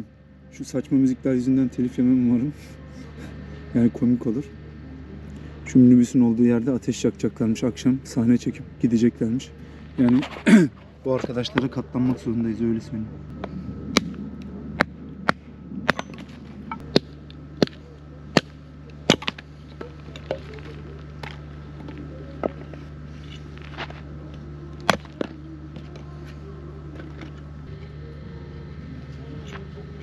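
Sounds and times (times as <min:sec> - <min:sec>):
hatchet splitting wood: 0:14.8 - 0:22.7, 0:24.8 - 0:26.0.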